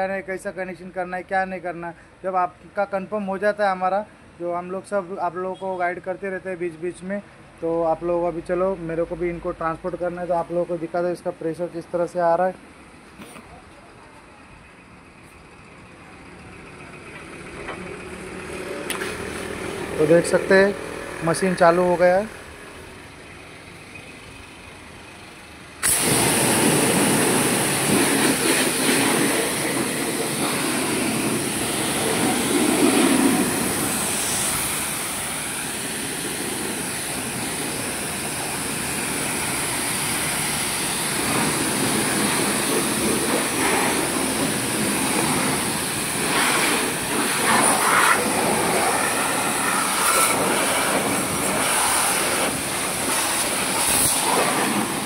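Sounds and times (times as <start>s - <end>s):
high-pressure water spraying: 25.8s - 55.0s.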